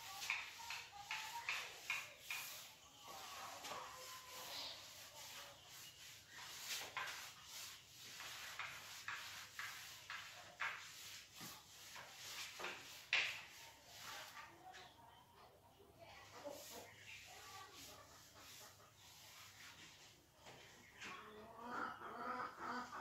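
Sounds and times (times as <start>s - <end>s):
duster rubbing blackboard: 0.0s - 14.4s.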